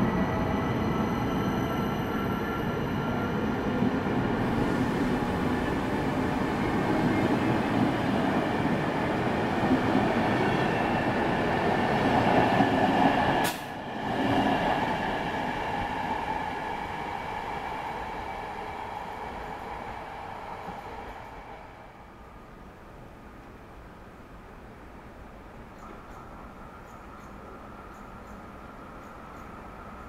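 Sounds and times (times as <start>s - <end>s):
train wheels rumbling: 3.7s - 21.9s.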